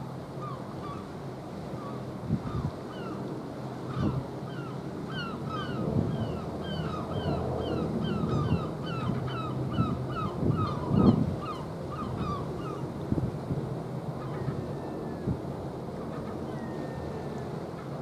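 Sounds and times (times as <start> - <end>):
wind buffeting microphone: 2.1 - 2.8, 5.5 - 18.0
birds calling: 3.9 - 12.9.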